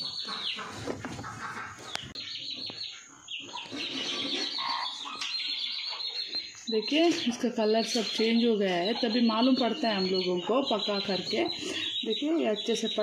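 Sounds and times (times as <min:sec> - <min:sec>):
chicken-like calls: 0:00.0 - 0:07.2
birds chirping: 0:00.0 - 0:13.0.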